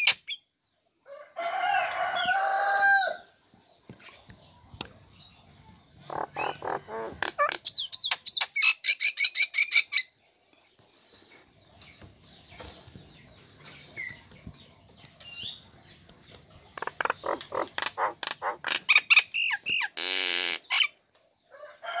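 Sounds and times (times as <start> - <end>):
myna chattering and whistling: 6.1 - 10.0, 16.8 - 20.0.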